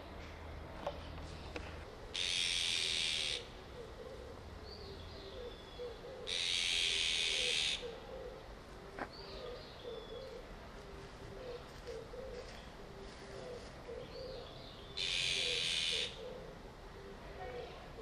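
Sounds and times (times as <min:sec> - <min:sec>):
low cooing: 0:01.9 - 0:18.0
magpies harsh rasping calls: 0:02.1 - 0:03.6, 0:05.4 - 0:08.4, 0:14.9 - 0:16.5.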